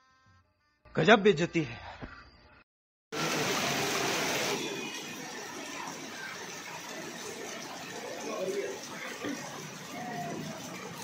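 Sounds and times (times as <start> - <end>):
heavy rain pouring: 3.1 - 11.0.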